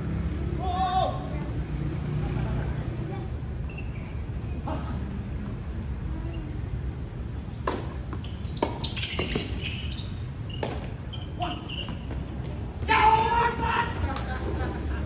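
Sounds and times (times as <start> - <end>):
tennis ball hit by racket: 7.6 - 9.6, 10.6 - 11.0.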